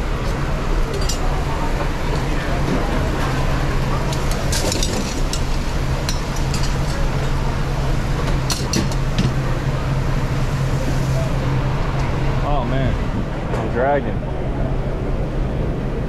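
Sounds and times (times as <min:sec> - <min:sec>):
kitchen ventilation roar: 0:00.0 - 0:16.0
metal tongs clinking on grill grate: 0:04.1 - 0:07.0.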